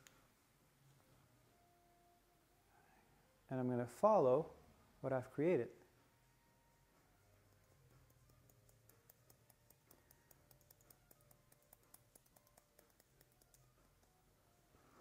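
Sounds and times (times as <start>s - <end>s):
scissors snipping hair: 7.5s - 14.2s.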